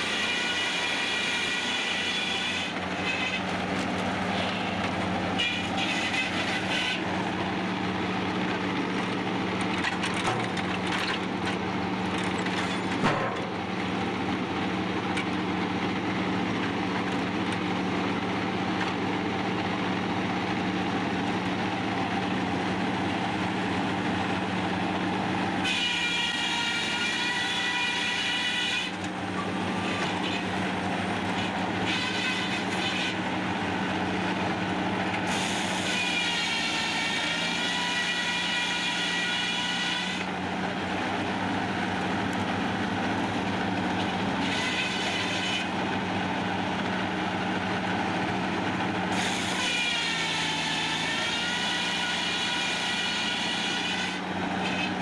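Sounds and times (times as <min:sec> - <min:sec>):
high saw whine: 0:00.0 - 0:03.5, 0:04.2 - 0:09.2, 0:25.6 - 0:46.8, 0:49.1 - 0:55.0
sawmill machine hum: 0:00.0 - 0:55.0.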